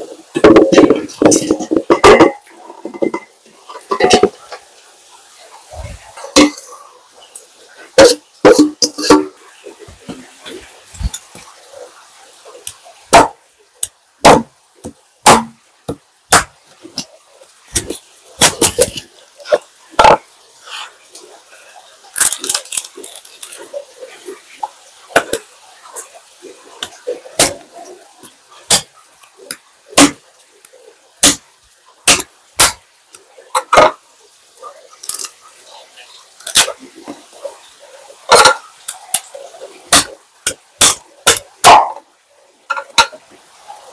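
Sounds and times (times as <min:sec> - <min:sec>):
sharp kitchen knocks: 0:13.1 - 0:13.3, 0:14.3 - 0:14.5, 0:15.2 - 0:16.5, 0:32.1 - 0:32.8.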